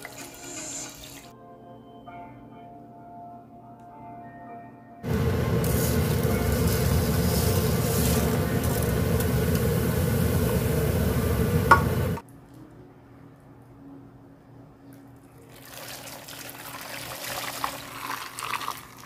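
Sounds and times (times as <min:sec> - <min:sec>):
water boiling and bubbling: 0:05.0 - 0:12.2, 0:15.5 - 0:19.0
salt being poured: 0:05.1 - 0:10.9, 0:15.5 - 0:19.0.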